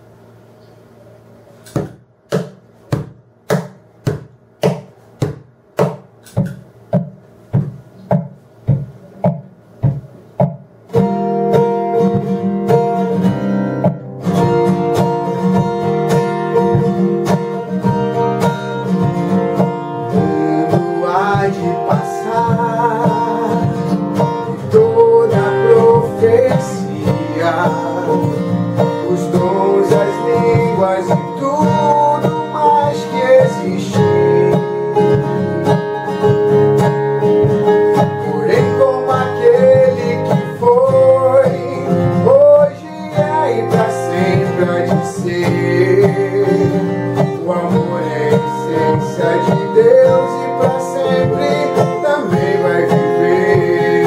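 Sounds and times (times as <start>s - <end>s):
acoustic guitar playing: 1.6s - 54.0s
man singing a slow ballad: 20.1s - 36.1s, 38.2s - 54.0s.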